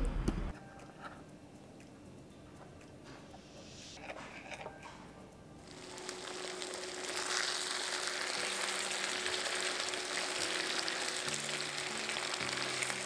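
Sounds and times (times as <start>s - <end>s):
chicken sizzling in oil: 5.6s - 13.0s.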